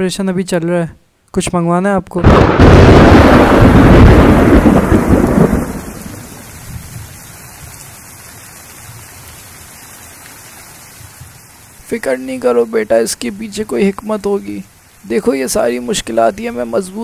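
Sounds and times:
thunder rumbling: 2.2s - 8.0s
steady rainfall: 2.2s - 17.0s.

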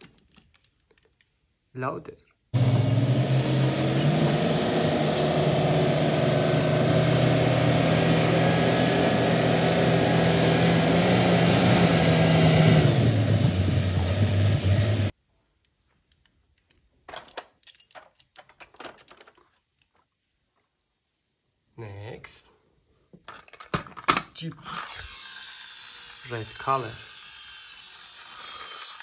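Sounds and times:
plastic toys clattering: 0.0s - 1.4s, 16.1s - 20.1s, 23.2s - 24.6s
diesel engine running under load: 2.6s - 15.1s.

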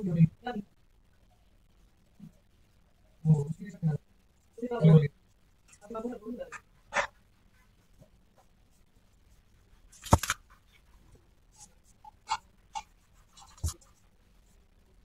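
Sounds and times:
paintbrush strokes on paper: 5.6s - 15.0s.

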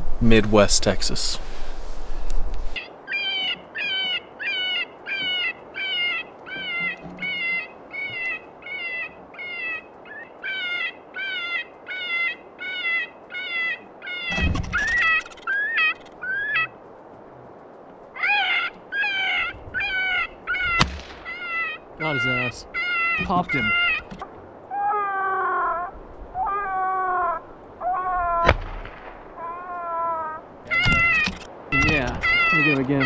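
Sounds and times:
rabbit distress call from speaker: 18.2s - 28.6s, 29.4s - 33.0s.

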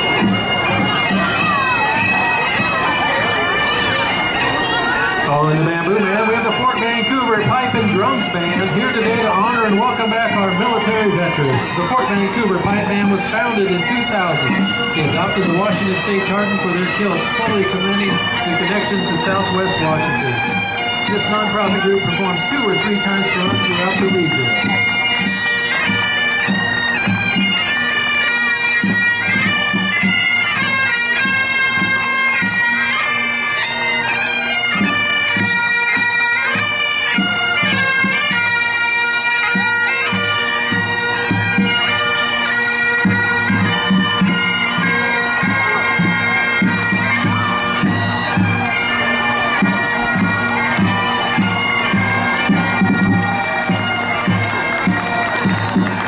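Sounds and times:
drums beating time: 0.0s - 4.7s, 5.3s - 27.6s, 43.0s - 56.0s
bagpipes melody with drones: 0.0s - 56.0s.

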